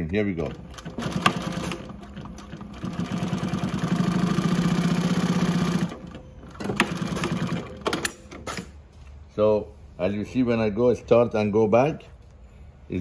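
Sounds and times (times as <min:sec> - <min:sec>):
sewing machine stitching: 0:00.4 - 0:08.6.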